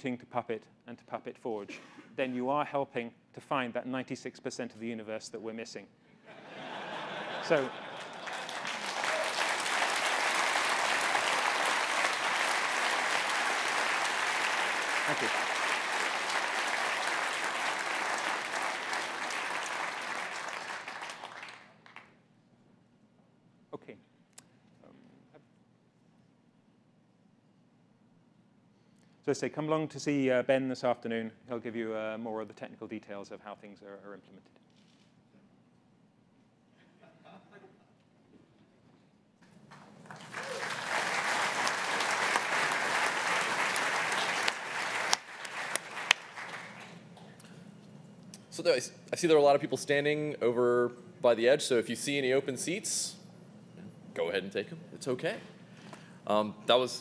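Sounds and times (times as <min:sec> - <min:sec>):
audience applauding: 0:07.0 - 0:22.1, 0:39.7 - 0:47.4.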